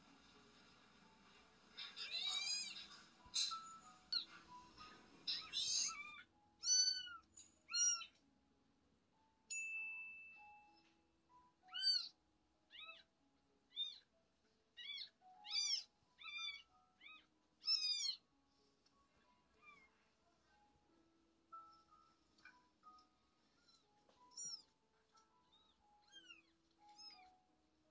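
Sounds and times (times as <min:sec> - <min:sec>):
soft background music: 0:00.0 - 0:27.9
kittens mewing: 0:01.8 - 0:08.2, 0:11.7 - 0:12.1, 0:14.8 - 0:18.2, 0:25.5 - 0:27.3.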